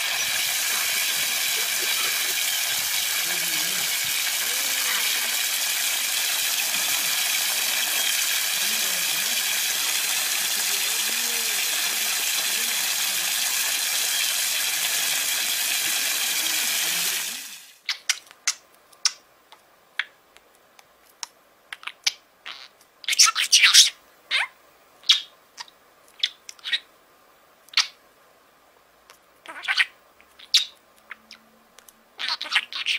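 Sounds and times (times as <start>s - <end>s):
water gushing from tap: 0.0s - 17.8s.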